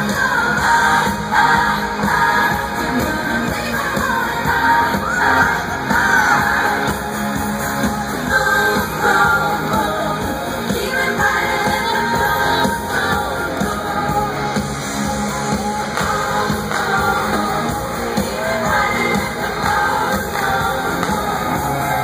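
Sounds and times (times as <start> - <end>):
woman singing: 0.0 - 7.0, 8.0 - 14.6
live pop band over loudspeakers: 0.0 - 22.0.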